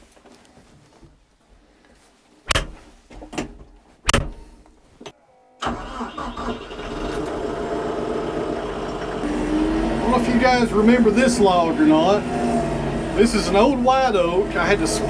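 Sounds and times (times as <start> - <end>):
sharp clunks: 2.5 - 4.6
tractor diesel engine running: 5.6 - 15.0.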